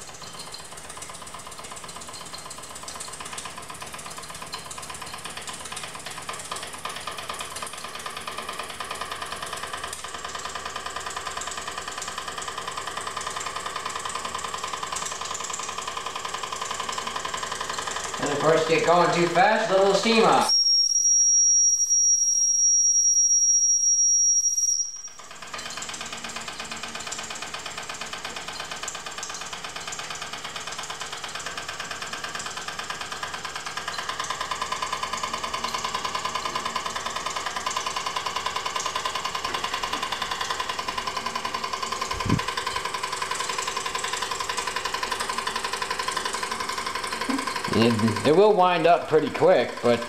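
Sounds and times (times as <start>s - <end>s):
toy steam engine chuffing: 0.0s - 20.5s, 25.1s - 50.0s
steady whine: 42.0s - 42.6s.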